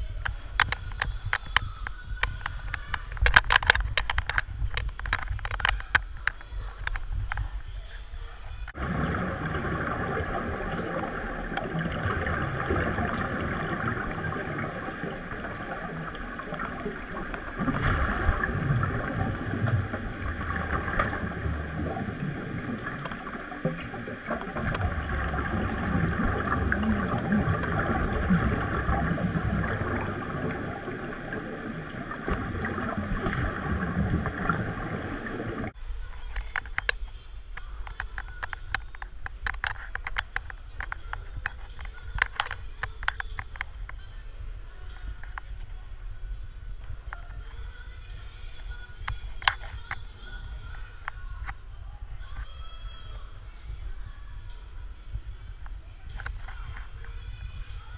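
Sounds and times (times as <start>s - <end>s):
exhaled bubbles rumbling: 8.6s - 35.8s
scuba regulator hissing: 13.7s - 16.2s, 17.4s - 22.6s.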